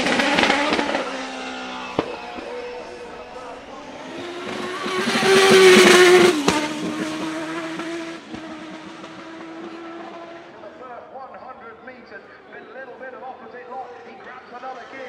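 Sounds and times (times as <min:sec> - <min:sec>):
race car passing at speed: 0:00.0 - 0:10.8.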